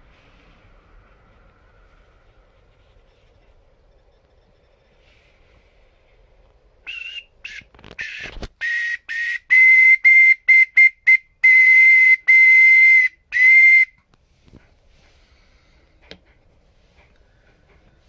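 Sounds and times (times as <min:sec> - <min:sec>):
clay bird whistle toots: 0:06.9 - 0:14.0.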